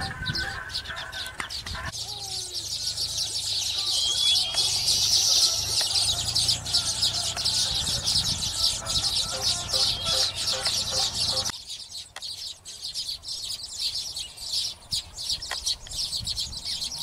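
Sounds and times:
birds chattering chorus: 0.0 - 17.0
whistled bird note: 2.2 - 11.5.

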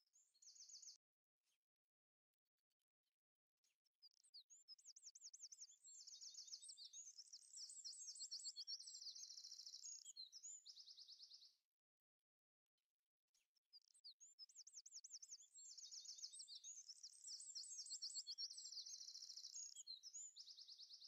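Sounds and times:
small bird chirping trills: 0.0 - 1.0, 3.7 - 11.6, 13.4 - 21.0.

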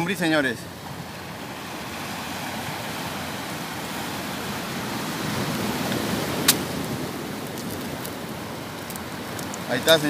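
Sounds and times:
ocean surf breaking on rocks: 0.0 - 10.0.

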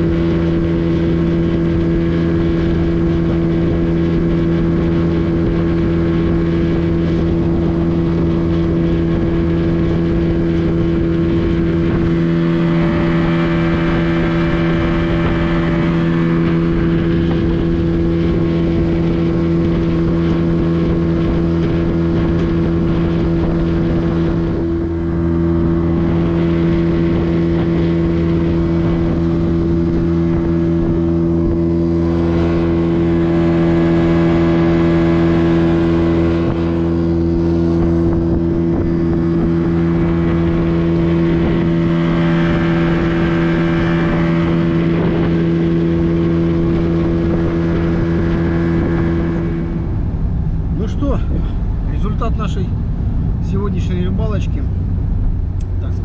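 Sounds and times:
outboard motor droning: 0.0 - 56.0.

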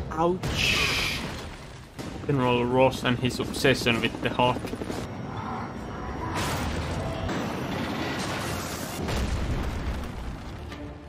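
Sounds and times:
explosion booms: 9.0 - 10.6.

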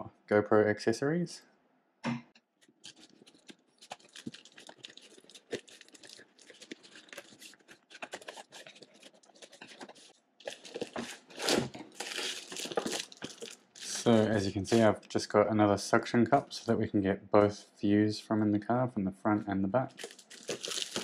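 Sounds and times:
packaging crinkling and rustling: 2.6 - 15.2, 19.9 - 21.0.

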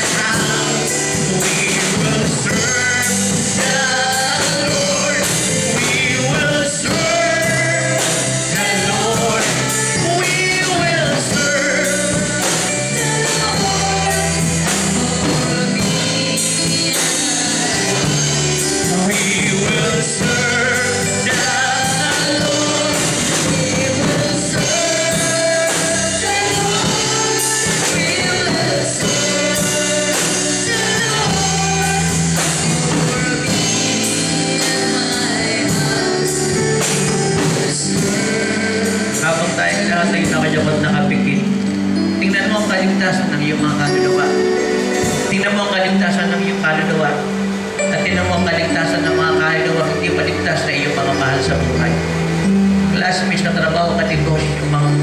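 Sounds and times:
man singing into a microphone: 0.0 - 41.4
instrumental accompaniment with a beat: 0.0 - 53.5.

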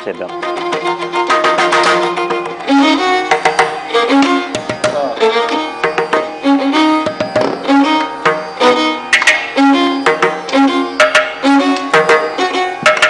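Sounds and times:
indian classical melody: 0.0 - 13.0
hand drum strikes: 3.3 - 5.0, 7.0 - 7.7.

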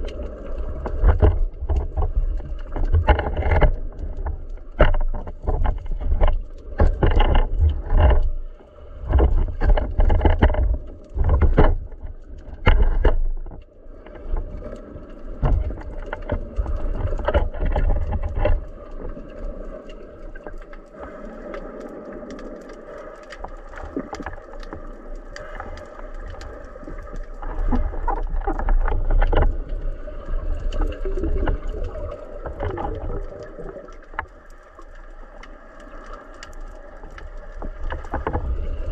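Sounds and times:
low underwater rumble and hum: 0.0 - 38.9
muffled underwater knocks and thumps: 0.8 - 8.4, 9.0 - 13.7, 15.3 - 18.6, 27.1 - 29.8.

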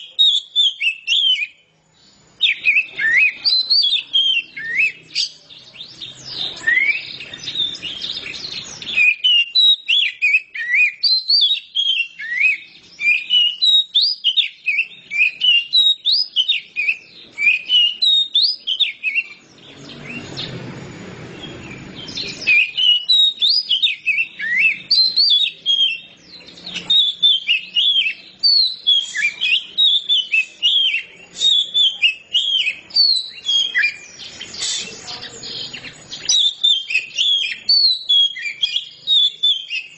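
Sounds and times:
bird singing whistled notes: 0.0 - 39.9
low noise: 14.5 - 39.9.

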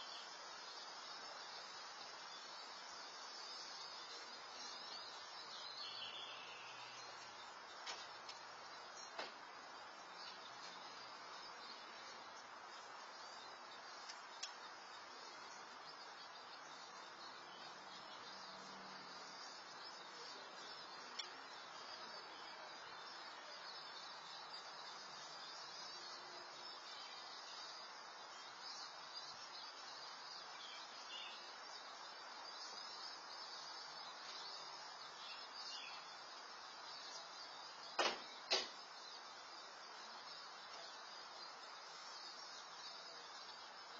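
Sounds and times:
faint high chirps: 0.0 - 43.9
microphone hiss: 0.0 - 43.9
faint clicks: 14.0 - 14.6, 21.1 - 21.4.

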